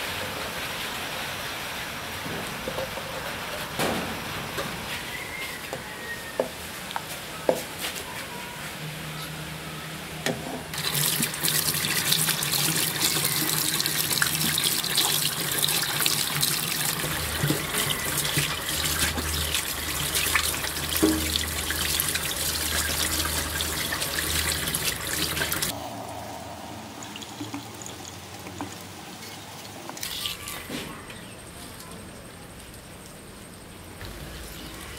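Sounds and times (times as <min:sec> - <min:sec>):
tap water splashing into sink: 0:10.8 - 0:25.7.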